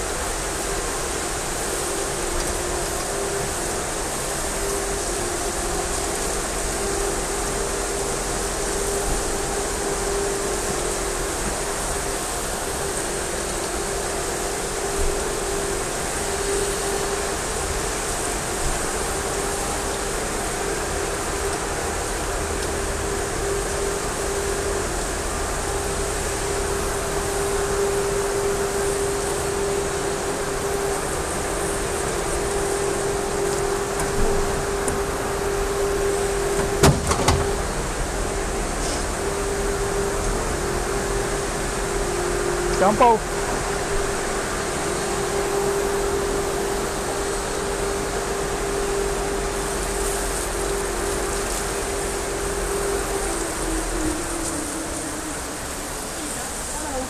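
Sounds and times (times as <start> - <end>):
steady hum: 0.0 - 57.0
water spraying on wet fur: 37.4 - 57.0
water spraying onto wet fur: 47.9 - 57.0.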